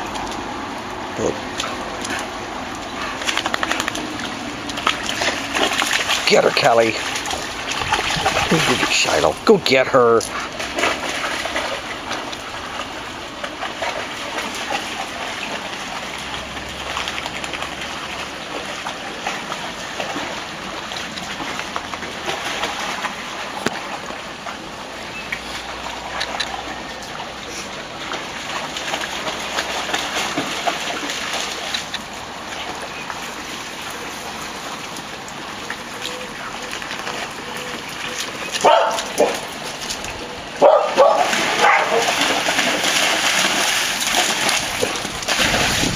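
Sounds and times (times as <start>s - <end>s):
dogs splashing through water: 0.0s - 45.9s
running water trickling: 0.0s - 45.9s
dog barking: 38.6s - 39.4s, 40.6s - 42.1s.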